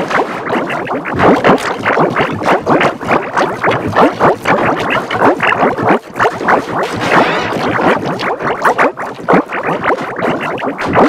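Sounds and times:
pitch-shifted cartoon audio: 0:07.0 - 0:08.0.

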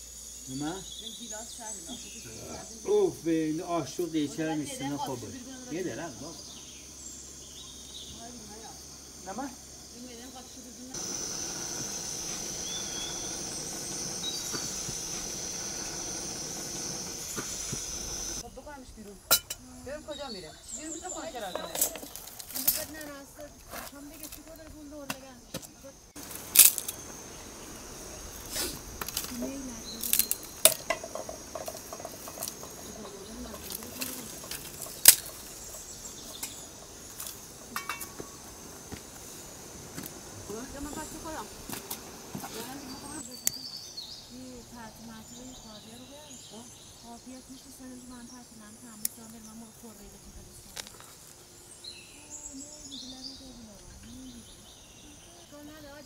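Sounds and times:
gas burner hissing: 0:00.0 - 0:56.0
sharp branch crack: 0:25.1 - 0:27.0, 0:28.5 - 0:30.8
twigs snapping and rustling: 0:25.1 - 0:27.0, 0:29.0 - 0:30.9
simmering pot ticks: 0:30.2 - 0:38.3.

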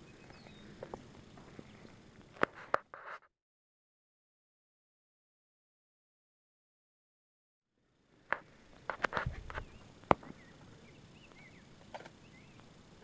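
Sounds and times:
birds chirping: 0:00.0 - 0:02.3, 0:09.4 - 0:12.8.

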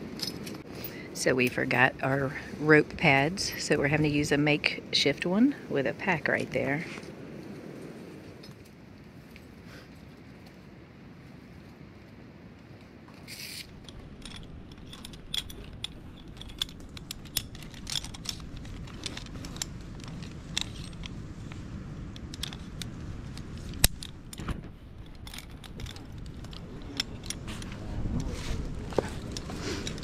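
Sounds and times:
metal climbing gear clinking: 0:00.0 - 0:02.4, 0:03.3 - 0:04.3, 0:13.2 - 0:30.0.

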